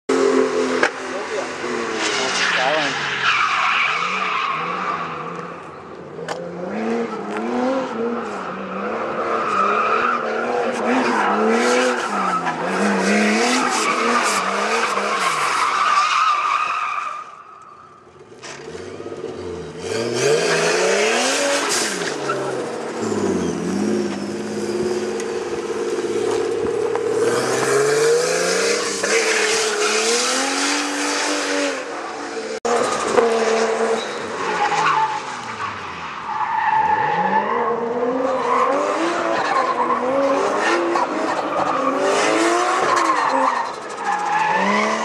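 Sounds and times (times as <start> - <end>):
car engine revving: 3.8 - 15.6, 18.3 - 35.9.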